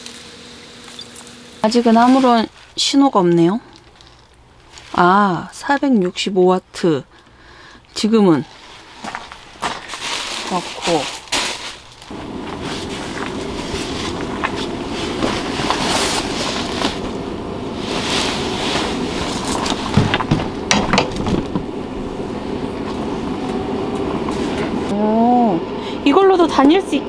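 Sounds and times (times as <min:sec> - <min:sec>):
fan heater drone: 0:00.0 - 0:27.0
clicks and knocks: 0:19.9 - 0:21.7.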